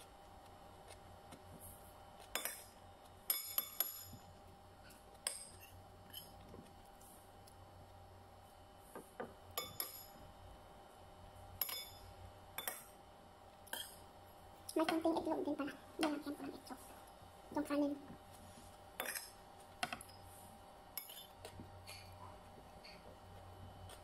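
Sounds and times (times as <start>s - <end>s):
metal spoon clinking on plate: 9.6s - 10.2s, 11.6s - 12.9s, 19.0s - 20.2s, 21.0s - 22.2s.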